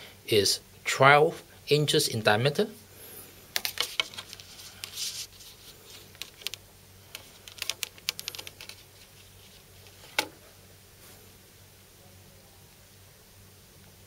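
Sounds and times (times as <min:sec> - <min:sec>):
hand handling vinyl record: 0:03.6 - 0:06.6, 0:07.2 - 0:11.2.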